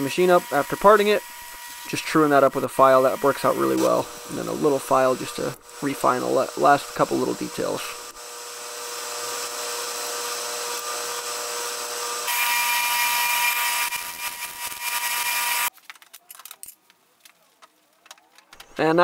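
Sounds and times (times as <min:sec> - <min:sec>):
lathe whine: 0:00.0 - 0:15.7.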